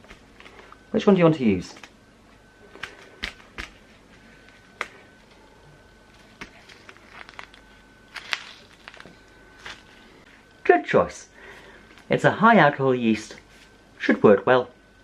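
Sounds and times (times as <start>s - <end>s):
foil sachets crinkling: 6.2s - 10.2s.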